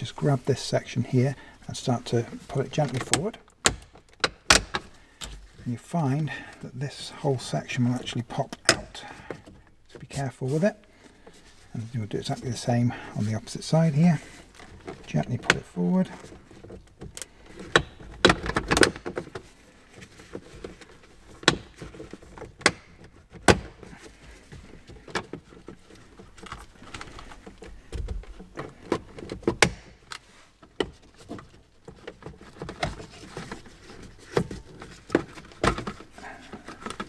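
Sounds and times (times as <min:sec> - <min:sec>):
plastic trim clicking and knocking: 0:02.9 - 0:05.4.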